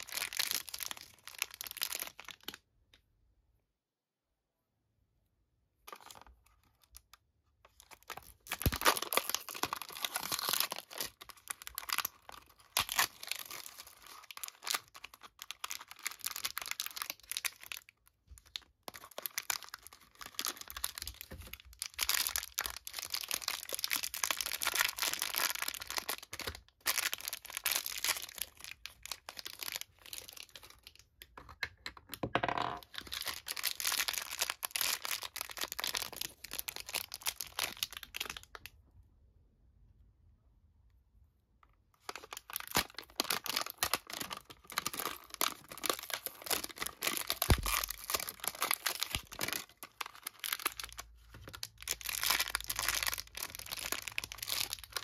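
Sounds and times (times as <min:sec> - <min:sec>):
foil bag rustling and tearing: 0:08.5 - 0:17.7, 0:42.2 - 0:51.0.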